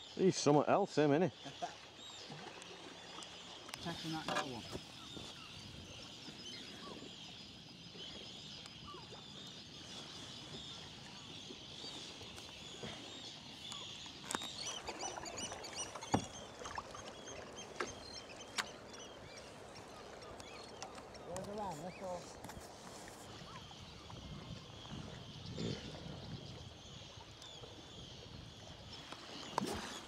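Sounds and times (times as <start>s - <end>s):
seabird colony calling: 0.0s - 30.0s
kayak paddle strokes: 1.5s - 7.2s, 7.9s - 25.2s, 28.7s - 30.0s
paddle knocking against boat: 4.2s - 4.9s, 15.6s - 18.8s.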